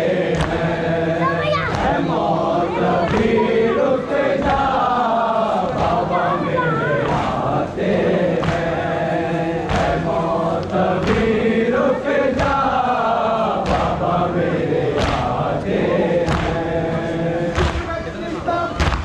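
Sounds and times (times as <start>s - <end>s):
men chanting together: 0.0s - 19.0s.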